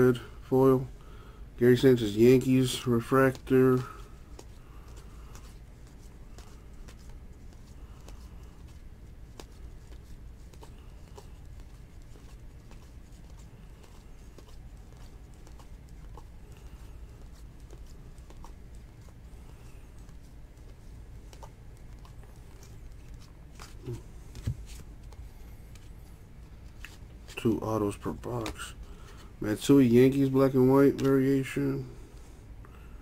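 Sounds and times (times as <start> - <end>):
steady low hum: 0.0 - 33.0
cards flicking and clicking: 2.7 - 26.0, 26.7 - 29.3.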